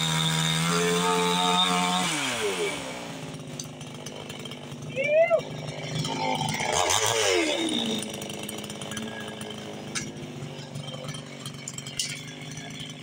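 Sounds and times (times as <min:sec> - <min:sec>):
chainsaw idling: 0:00.0 - 0:13.0.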